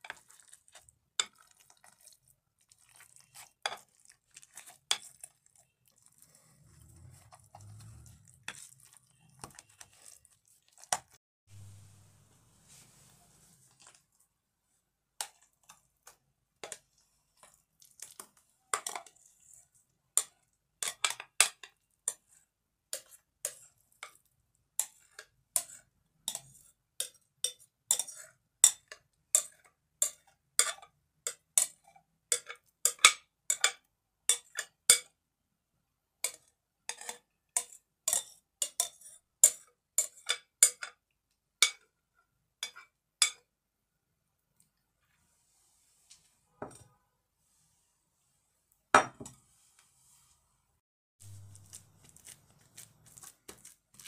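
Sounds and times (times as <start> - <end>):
utensil scraping glass bowl: 2.9 - 11.2.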